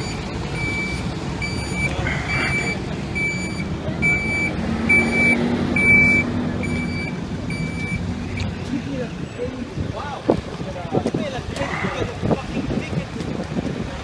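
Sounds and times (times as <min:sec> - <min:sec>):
backup alarm beeping: 0:00.0 - 0:08.5
low engine rumble: 0:00.0 - 0:14.0.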